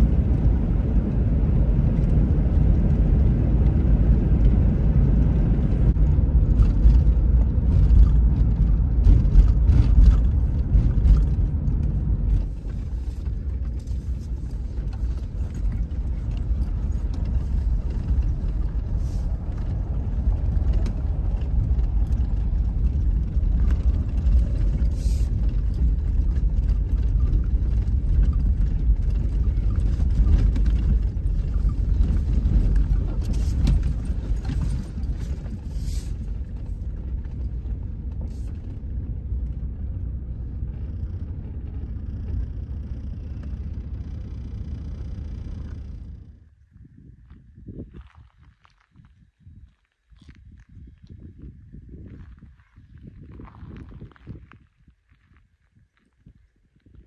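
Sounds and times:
engine and road noise rumble: 0:00.0 - 0:57.0.

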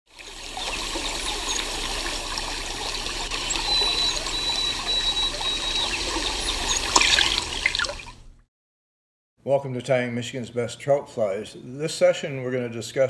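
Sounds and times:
water trickling and babbling: 0:00.1 - 0:08.4.

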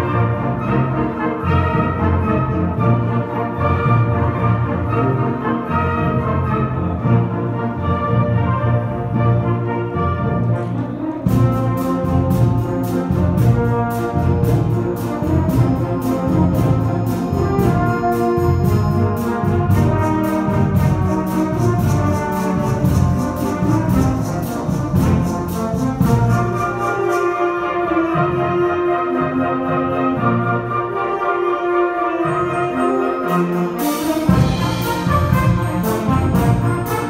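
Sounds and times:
brass playing a tune: 0:00.0 - 0:37.0
steady percussion beat: 0:10.4 - 0:27.6, 0:33.0 - 0:37.0.

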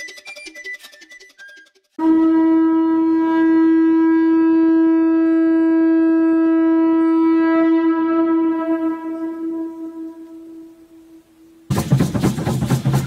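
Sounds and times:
conch shell trumpet note: 0:02.0 - 0:11.7.

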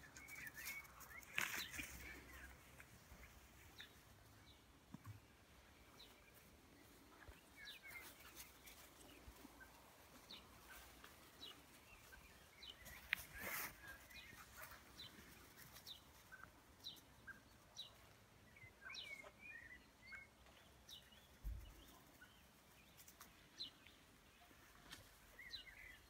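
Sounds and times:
brief rustle: 0:00.2 - 0:02.2.

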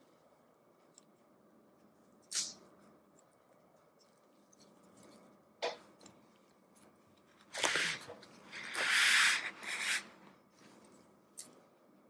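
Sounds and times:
rustling and scraping: 0:06.1 - 0:11.0.

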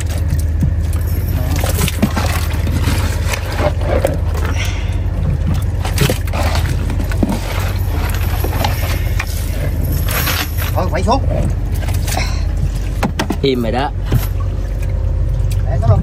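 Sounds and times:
boat engine rumbling: 0:00.0 - 0:16.0
knocks and scrapes of gear: 0:05.5 - 0:12.0.

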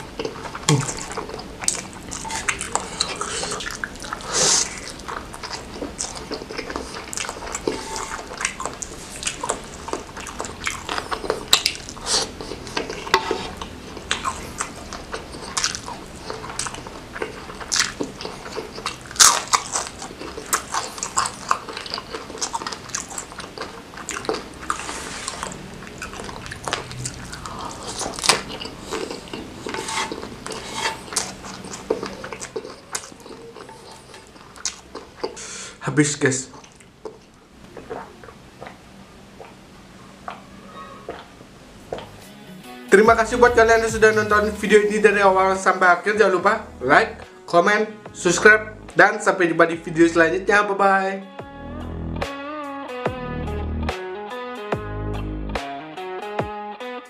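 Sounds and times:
wet chewing: 0:00.0 - 0:35.8, 0:36.5 - 0:42.2.

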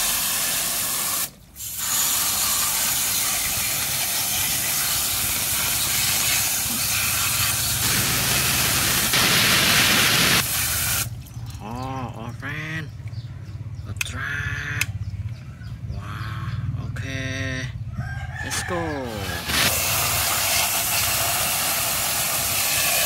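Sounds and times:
hose nozzle spraying water: 0:00.0 - 0:11.3, 0:19.1 - 0:23.0.

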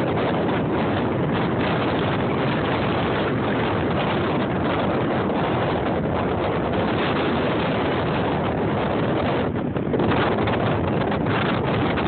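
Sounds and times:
wind buffeting microphone: 0:00.0 - 0:12.0.

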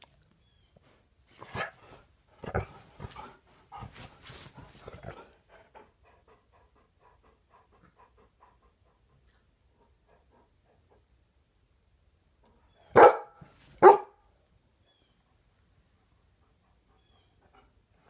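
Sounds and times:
dog panting: 0:02.6 - 0:11.3, 0:15.8 - 0:18.0.

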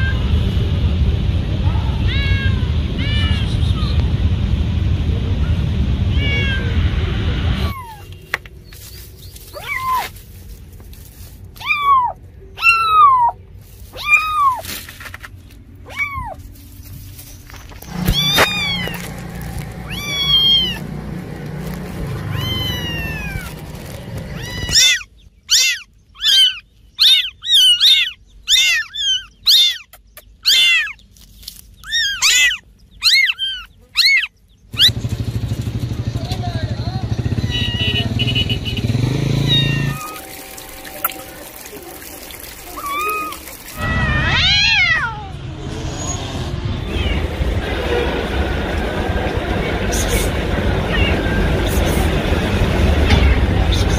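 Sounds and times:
cats meowing: 0:02.0 - 0:04.0, 0:06.1 - 0:06.9, 0:07.5 - 0:08.2, 0:09.4 - 0:10.2, 0:11.5 - 0:14.7, 0:15.8 - 0:16.6, 0:17.8 - 0:31.0, 0:31.8 - 0:34.9, 0:37.4 - 0:38.0, 0:39.4 - 0:45.4, 0:46.8 - 0:47.6, 0:50.8 - 0:51.6
kittens mewing: 0:06.1 - 0:06.8, 0:07.5 - 0:08.2, 0:09.4 - 0:10.2, 0:11.5 - 0:14.8, 0:15.8 - 0:16.6, 0:17.8 - 0:31.0, 0:31.8 - 0:34.9, 0:37.4 - 0:38.0, 0:39.3 - 0:40.3, 0:42.5 - 0:45.4.

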